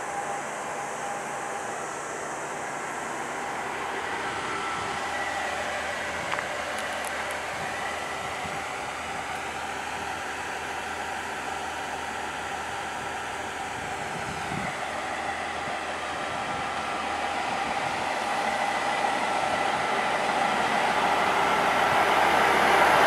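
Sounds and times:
diesel railcar engines idling: 0:00.0 - 0:23.0.

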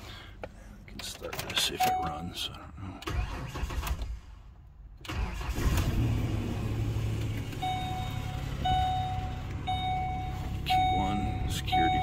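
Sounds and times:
car engine cranking and idling: 0:00.0 - 0:12.0
dashboard warning chime beeps: 0:01.6 - 0:02.5, 0:07.6 - 0:12.0.

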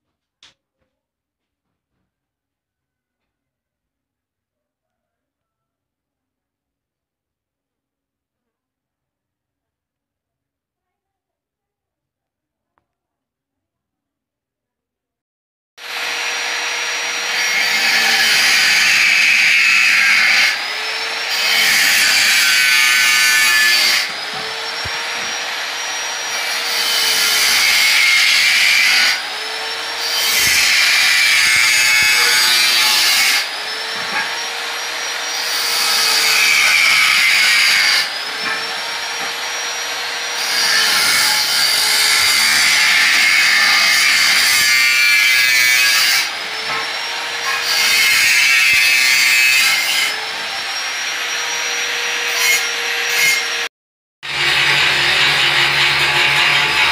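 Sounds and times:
angle grinder cutting steel tube: 0:15.8 - 0:56.9.

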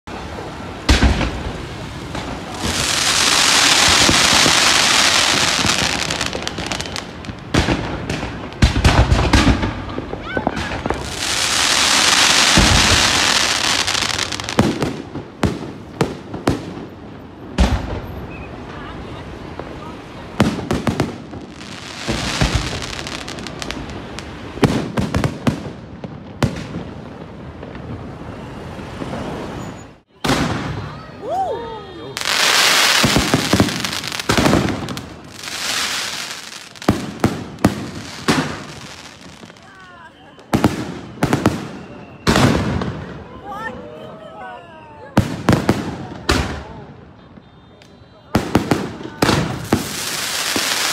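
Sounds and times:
heavy firework booms: 0:00.4 - 0:18.3, 0:19.6 - 0:29.4, 0:30.2 - 0:31.2, 0:32.2 - 0:39.6, 0:40.5 - 0:43.3, 0:48.3 - 0:50.9
firework bang: 0:00.8 - 0:18.4, 0:20.4 - 0:31.2, 0:32.2 - 0:39.6, 0:40.5 - 0:43.2
firework crackling pops: 0:00.8 - 0:18.6, 0:19.5 - 0:31.3, 0:32.2 - 0:43.2, 0:45.2 - 0:46.8, 0:47.4 - 0:50.9.

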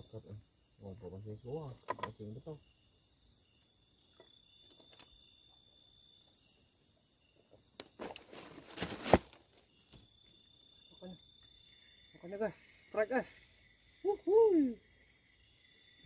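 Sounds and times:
crickets and insects chirring: 0:00.0 - 0:16.0
rustling: 0:07.9 - 0:09.5.

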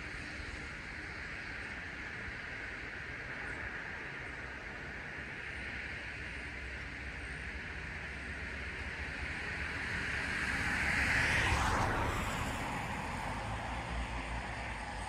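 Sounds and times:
passing vehicle rushing: 0:09.8 - 0:15.0.

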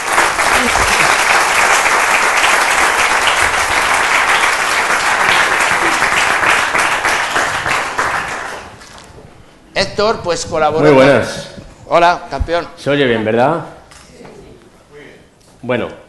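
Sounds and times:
audience applauding: 0:00.0 - 0:09.2.

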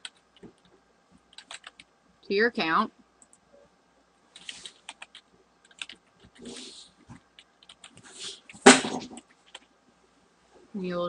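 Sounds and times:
keyboard keys clicking: 0:01.3 - 0:01.9, 0:04.4 - 0:06.3, 0:07.4 - 0:08.0.

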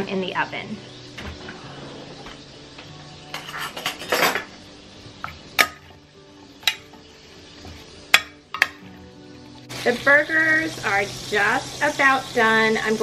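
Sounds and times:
food scraping in roasting pan: 0:03.3 - 0:04.6.

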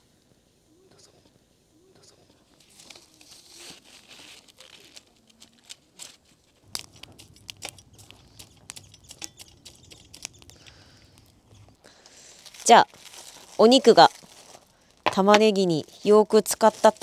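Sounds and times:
wood fire crackling: 0:02.6 - 0:17.0
faint low rumble: 0:06.6 - 0:15.0.

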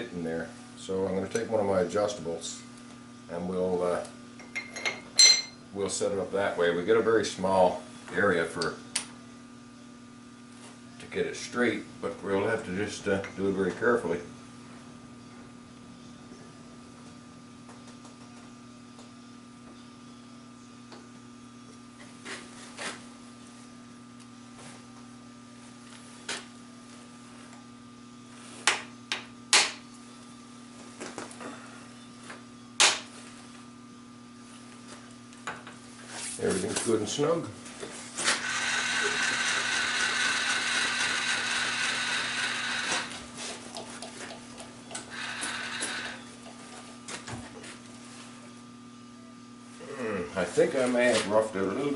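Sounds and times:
low electrical hum: 0:00.0 - 0:51.9
milling cutter whining: 0:38.2 - 0:43.8, 0:44.8 - 0:46.5
machine motor humming: 0:38.2 - 0:47.3.

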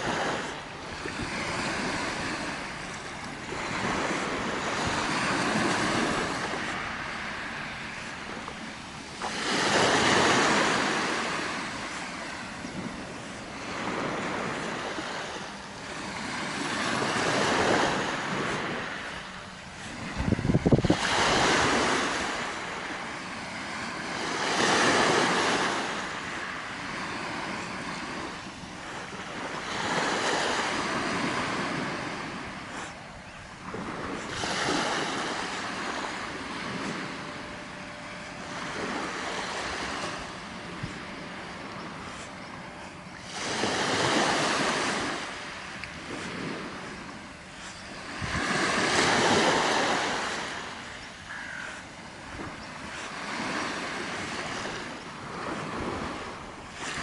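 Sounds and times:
small waves breaking on shore: 0:00.0 - 0:57.0
wind gust on microphone: 0:19.8 - 0:23.0, 0:43.2 - 0:50.7.

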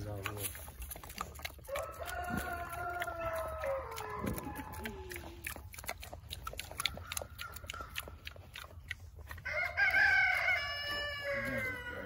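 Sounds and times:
piglets nosing and chewing: 0:00.0 - 0:12.0
rooster crowing: 0:01.7 - 0:04.6, 0:09.4 - 0:12.0.

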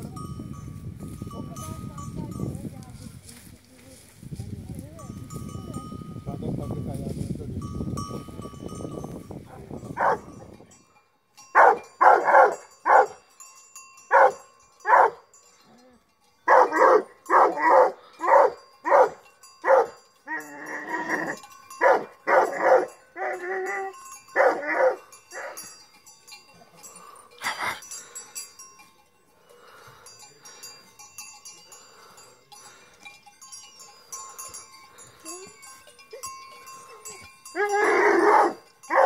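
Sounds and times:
dog barking: 0:10.0 - 0:10.3, 0:11.6 - 0:13.2, 0:14.1 - 0:15.2, 0:16.5 - 0:20.0, 0:21.8 - 0:23.4, 0:24.4 - 0:25.6, 0:37.6 - 0:39.0.

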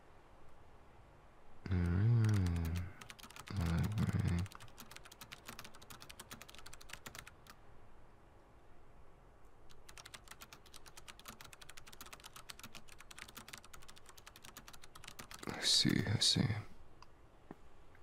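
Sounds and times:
typing on computer keyboard: 0:01.8 - 0:07.6, 0:09.7 - 0:15.9.

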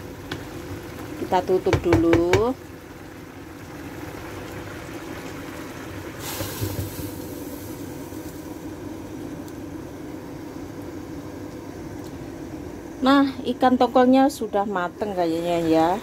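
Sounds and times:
curry simmering and bubbling: 0:00.0 - 0:12.6.

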